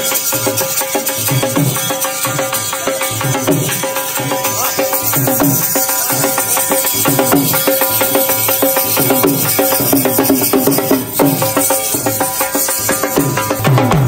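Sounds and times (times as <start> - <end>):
dhol drumming: 0.0 - 14.0.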